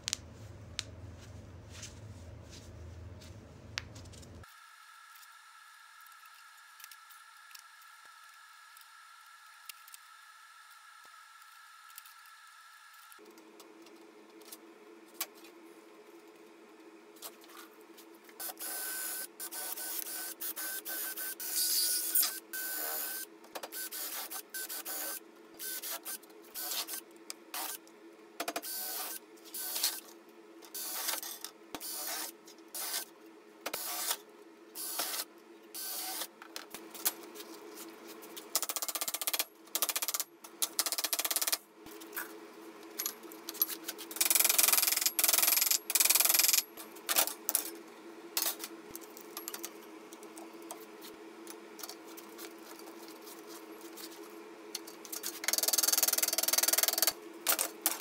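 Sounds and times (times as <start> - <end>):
low hum: 0.0 - 4.4.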